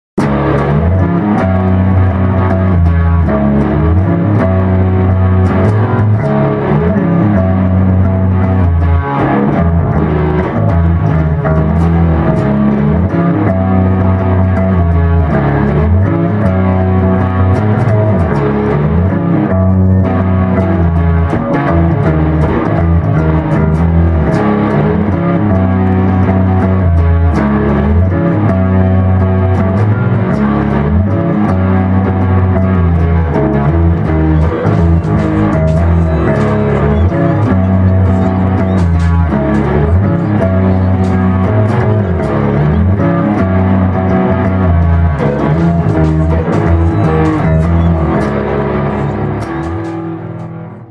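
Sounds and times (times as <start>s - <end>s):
bass guitar and guitar groove: 0.2s - 50.9s.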